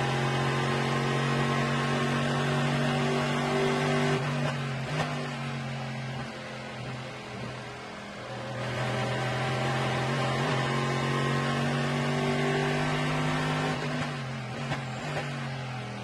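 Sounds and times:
race car engine accelerating: 0.0s - 7.7s, 8.3s - 16.0s.

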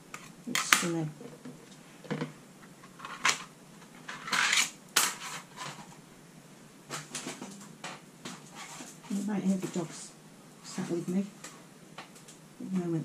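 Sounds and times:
plastic plate scraping: 2.9s - 5.9s.

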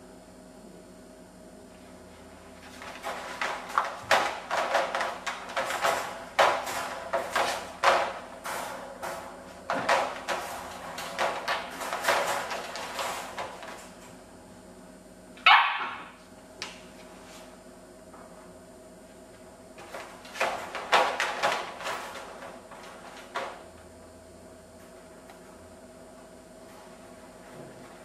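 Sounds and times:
puppy barking: 15.4s - 16.1s
puppy yelp: 15.4s - 16.1s.

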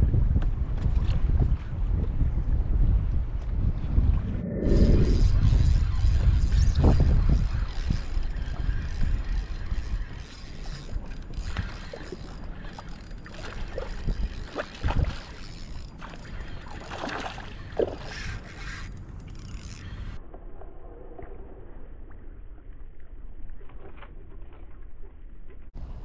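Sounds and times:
wind buffeting microphone: 0.0s - 18.6s
fishing reel clicking: 5.0s - 16.9s, 18.0s - 20.2s.

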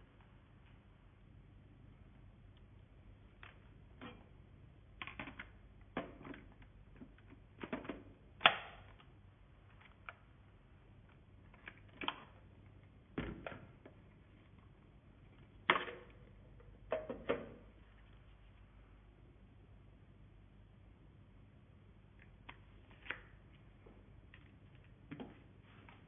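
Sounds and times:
plastic parts clicking and knocking: 5.0s - 9.1s.

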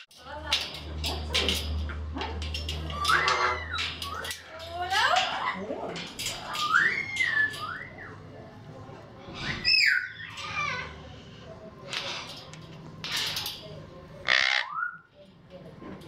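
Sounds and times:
parrot chatter: 0.0s - 8.2s, 9.2s - 13.5s, 14.1s - 15.1s
parrots whistling: 2.9s - 4.5s, 6.5s - 8.2s, 14.3s - 15.1s.

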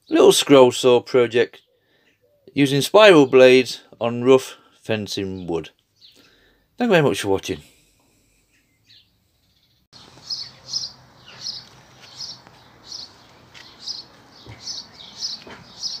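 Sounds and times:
bird chirping: 1.4s - 4.0s, 5.2s - 6.6s, 8.3s - 16.0s.

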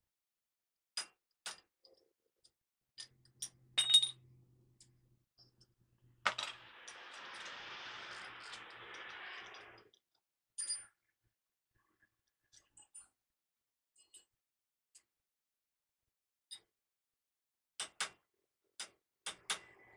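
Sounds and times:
steady rushing noise: 6.3s - 9.8s.

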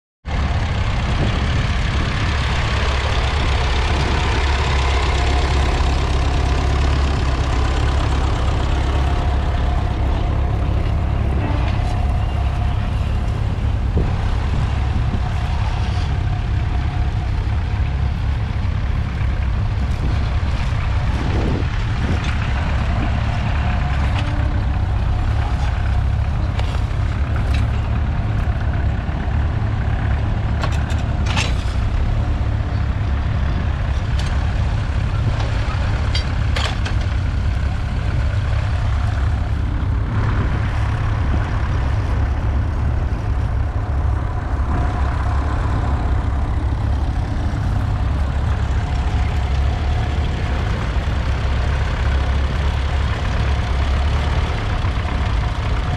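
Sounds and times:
tractor diesel engine under load: 0.2s - 55.9s.

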